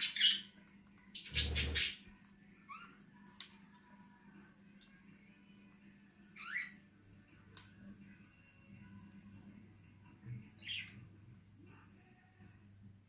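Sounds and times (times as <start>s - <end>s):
bird chirp: 1.1s - 2.0s, 6.4s - 6.8s, 10.5s - 11.0s.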